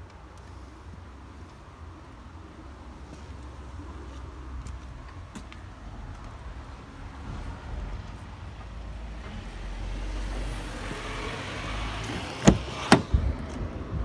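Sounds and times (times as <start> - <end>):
traffic rumble: 0.0 - 14.0
car door latch clicks: 12.0 - 13.6.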